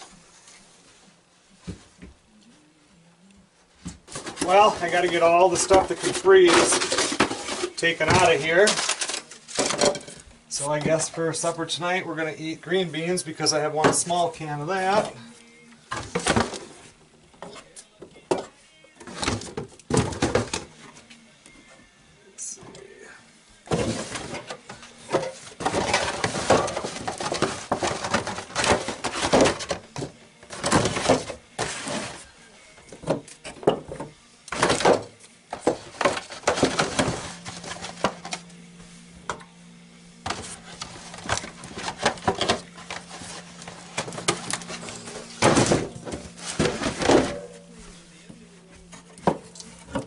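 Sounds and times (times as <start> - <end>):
low steady hum: 20.9 - 50.0.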